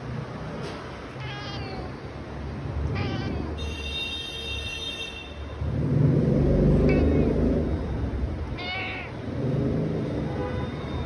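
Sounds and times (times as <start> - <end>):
cat meowing: 1.1 - 2.2, 2.8 - 3.9, 6.8 - 7.4, 8.6 - 9.2.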